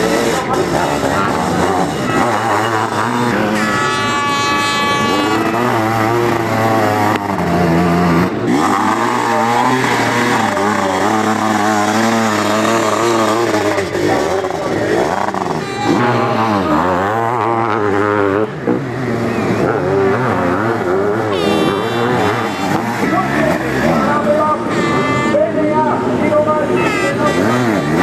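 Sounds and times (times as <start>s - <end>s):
motocross engines revving: 0.0s - 28.0s.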